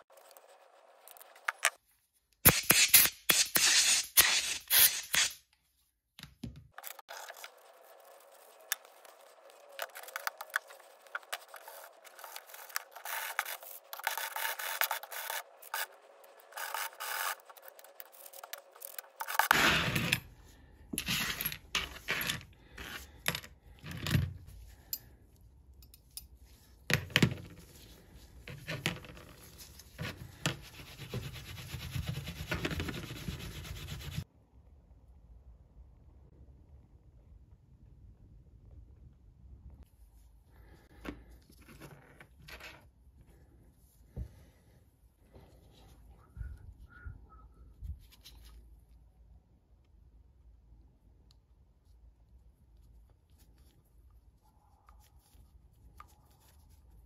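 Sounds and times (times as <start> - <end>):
small clicks and scrapes: 6.7 - 20.3.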